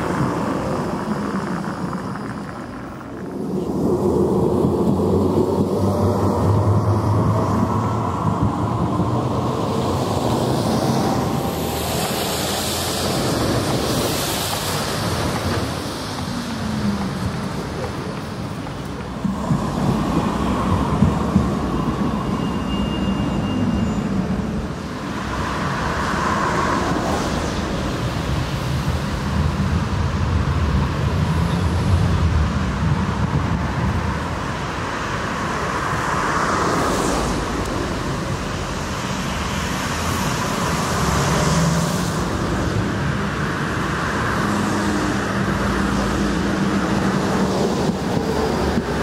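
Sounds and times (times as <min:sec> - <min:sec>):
road traffic rumble: 0:00.0 - 0:49.0
tram pulling into stop: 0:00.0 - 0:49.0
tram running past: 0:00.0 - 0:49.0.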